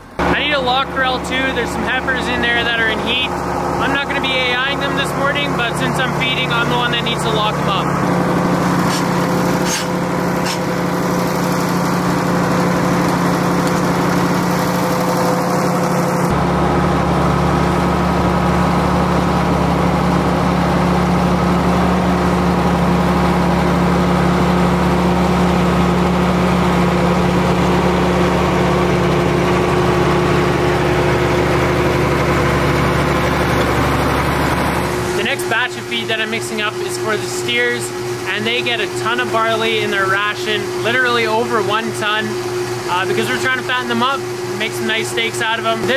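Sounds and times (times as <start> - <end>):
tractor diesel engine running: 0.0 - 45.9
sharp metal clanks: 8.8 - 10.7.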